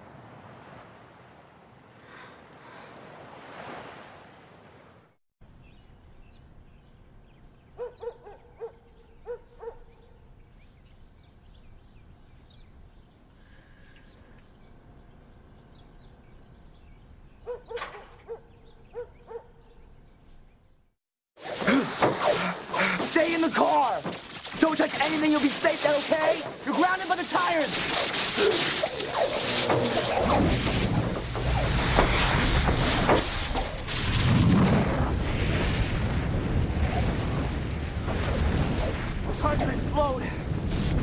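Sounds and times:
dog yelping barks: 7.8s - 10.0s, 17.4s - 19.6s.

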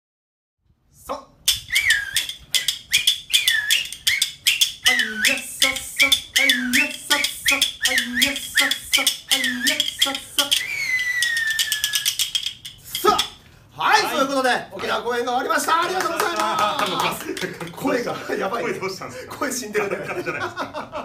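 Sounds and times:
finger whistling: 1.5s - 13.4s
hand clappers clicking: 1.5s - 13.4s, 15.8s - 18.0s.

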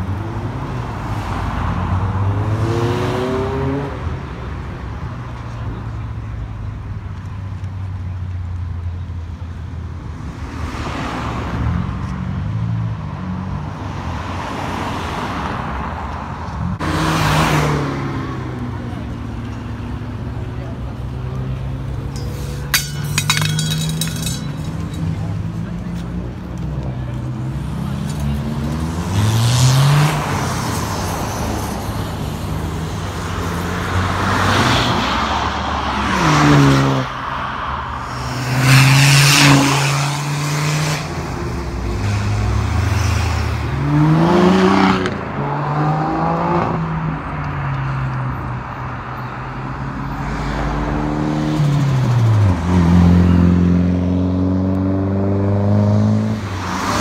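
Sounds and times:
cars accelerating hard past: 27.3s - 48.0s, 50.3s - 57.0s.

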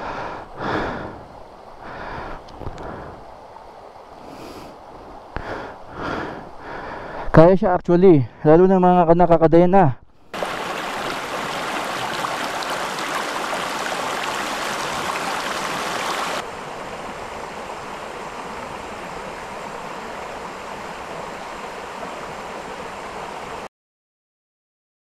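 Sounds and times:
river water rushing: 10.3s - 23.7s.

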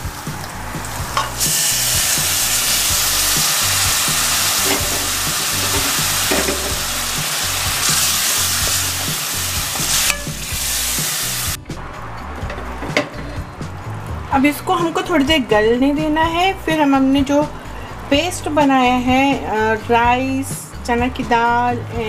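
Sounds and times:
water sizzling in hot oil: 0.0s - 11.6s
steel ladle stirring: 4.6s - 6.8s.

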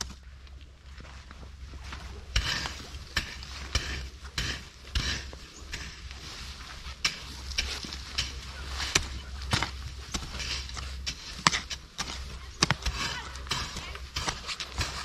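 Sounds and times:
gritty soil scrapes: 0.9s - 15.0s
hoe chopping into soil: 7.0s - 15.0s.

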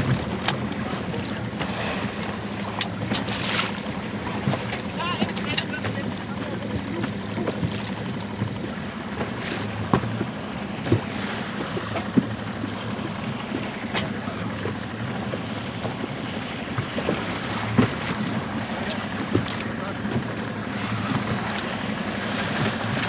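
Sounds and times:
water splashing against boat hull: 0.0s - 23.0s.

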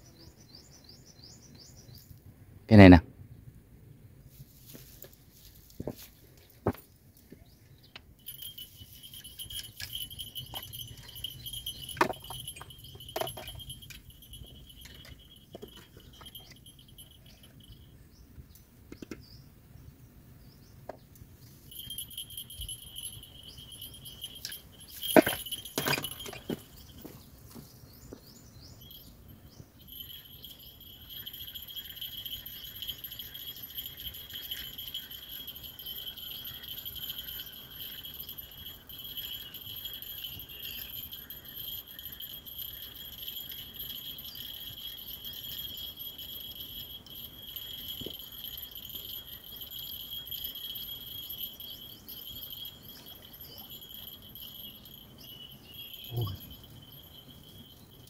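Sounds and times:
insects calling: 29.8s - 58.0s.

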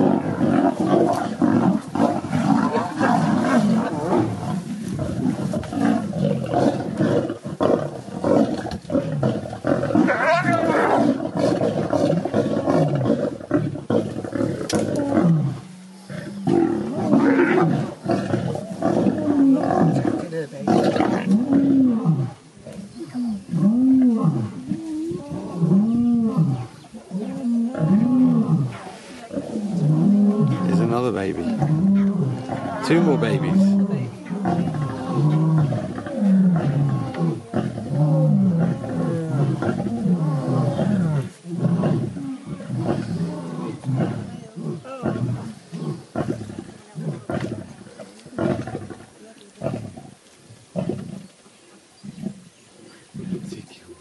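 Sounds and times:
lions growling: 0.0s - 51.3s.

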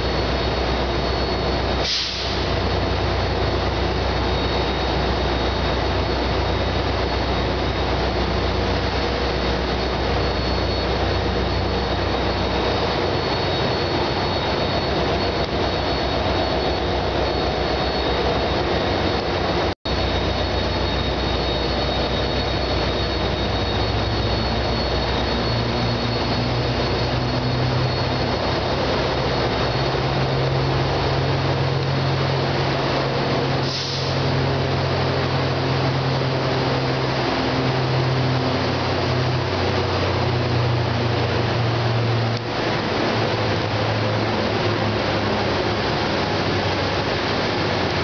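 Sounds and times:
diesel locomotive engine drone: 0.0s - 48.0s
faint high whine: 0.0s - 48.0s.

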